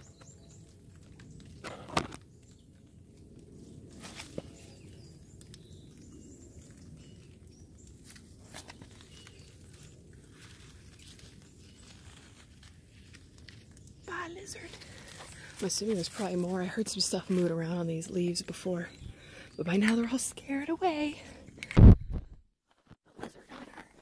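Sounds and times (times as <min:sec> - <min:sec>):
dry leaves rustling and crackling: 0:02.4 - 0:18.4.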